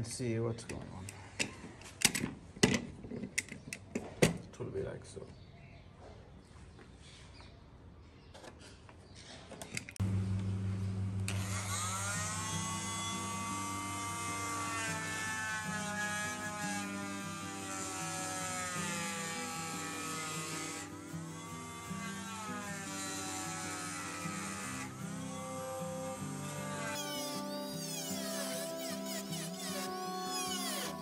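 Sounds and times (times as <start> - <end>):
oscillating multi-tool cutting wood: 11.2 - 31.0.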